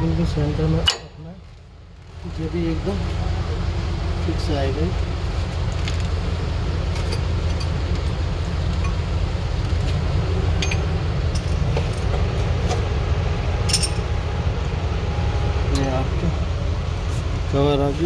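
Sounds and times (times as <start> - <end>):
metallic clinks of brake hardware: 10.6 - 12.1, 13.6 - 14.1.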